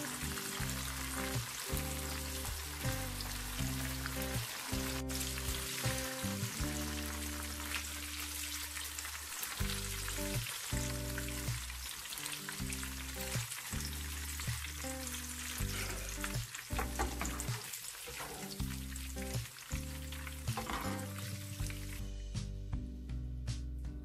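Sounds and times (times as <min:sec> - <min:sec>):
aromatics sizzling in hot oil: 0:00.0 - 0:22.1.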